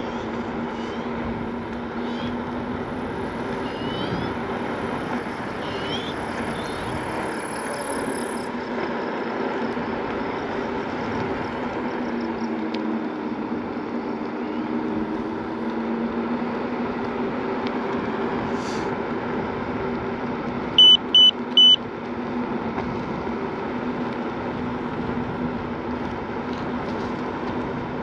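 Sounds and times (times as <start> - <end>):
tyre and wind noise: 0.0 - 9.0, 22.0 - 28.0
electric scooter motor hum: 0.0 - 28.0
short electronic horn beeps: 20.8 - 21.8.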